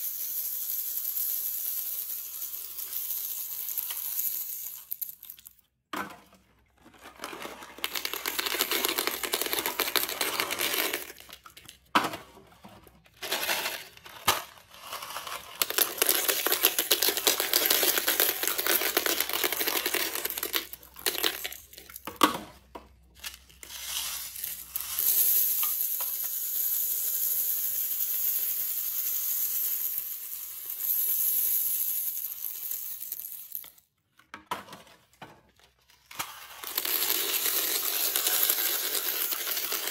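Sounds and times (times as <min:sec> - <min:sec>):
hard candies pattering into bowl: 0:06.7 - 0:12.3, 0:12.9 - 0:27.7, 0:35.9 - 0:39.9.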